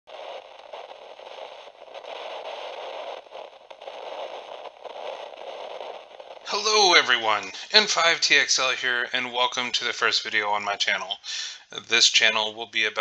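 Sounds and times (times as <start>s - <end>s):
radio static hiss: 0.1s - 13.0s.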